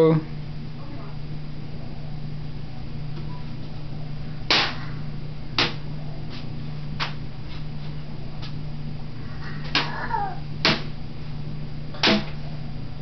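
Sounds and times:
low hum: 0.0 - 13.0
cardboard tube hitting: 12.0 - 12.4.

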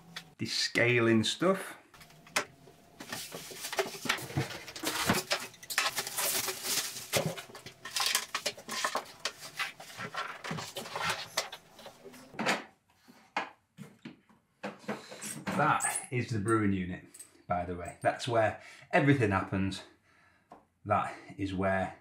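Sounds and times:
plastic wrapping crinkling: 3.1 - 12.0.

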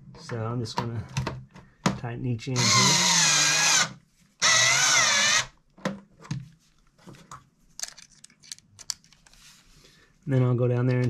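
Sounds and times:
electric screwdriver motor whir: 2.6 - 5.5.

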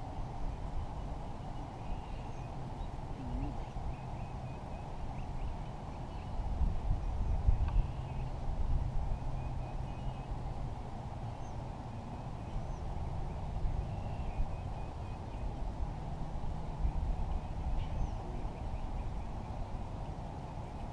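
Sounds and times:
wind rumbling on microphone: 4.8 - 20.9.

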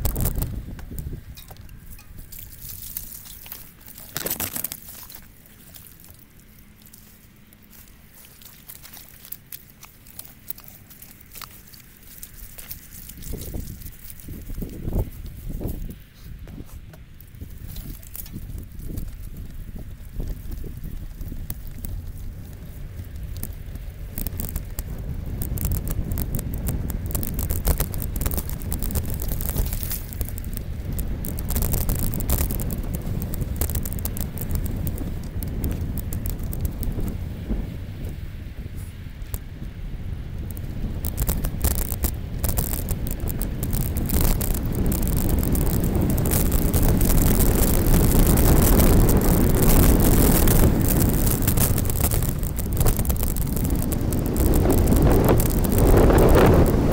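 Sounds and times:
bicycle tyres squelching through mud: 0.0 - 56.9
bike rattling over ruts: 0.0 - 56.9
wind buffeting microphone: 0.0 - 56.9
small clicks: 16.9 - 37.2, 40.4 - 56.9.

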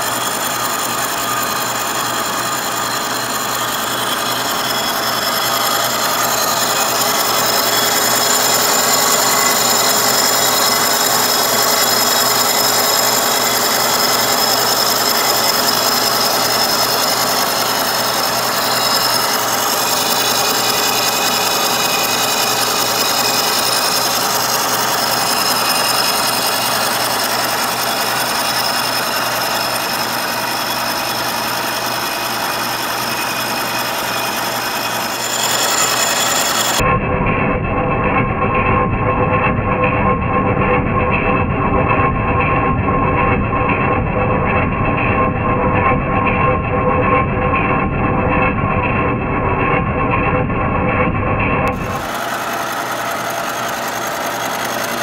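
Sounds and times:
milling machine cutting metal: 0.0 - 36.8, 51.6 - 55.0
high whining tones: 0.0 - 37.7.

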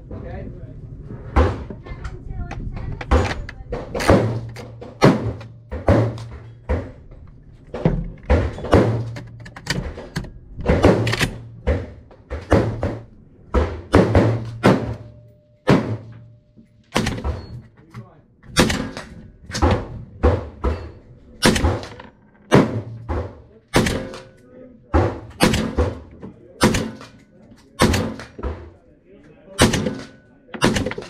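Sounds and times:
gunshots echoing: 3.9 - 7.0, 7.7 - 17.6, 18.5 - 28.8, 29.6 - 31.0.

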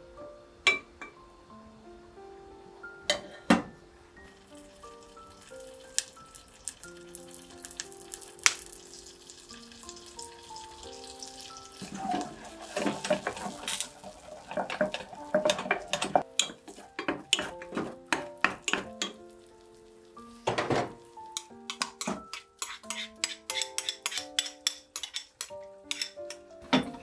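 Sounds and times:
spoon knocking on pot: 11.8 - 19.2, 20.5 - 27.0
spoon scraping in a saucepan: 11.8 - 19.2, 21.4 - 26.4.

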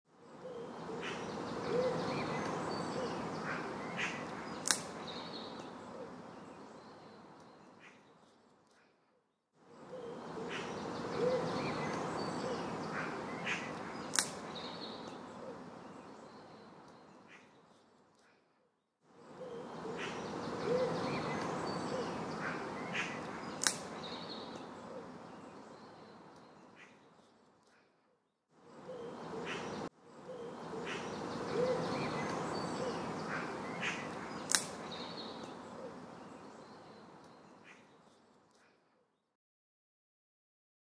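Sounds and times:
outdoor ambience hiss: 0.1 - 8.8, 9.6 - 18.4, 19.0 - 27.8, 28.5 - 38.8.

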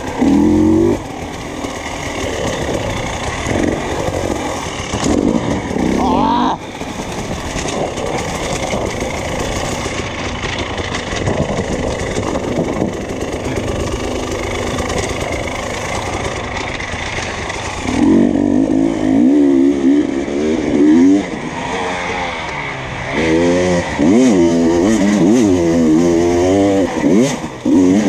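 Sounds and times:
motorcycle engine revving: 0.0 - 28.0
wind: 0.0 - 28.0
rattle: 6.7 - 18.1.

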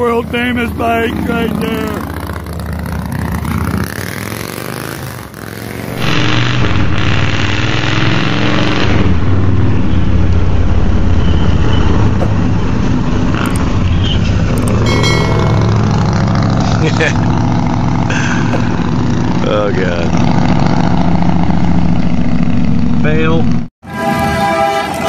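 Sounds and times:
motorcycle engine running close: 0.0 - 23.7
motorcycle riding by: 0.9 - 6.0.

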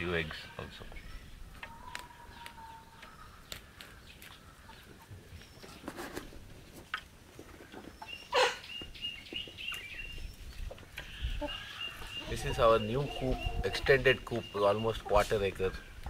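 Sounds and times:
soft chicken calls: 0.2 - 16.0
chickens pecking clicks: 1.5 - 4.9.

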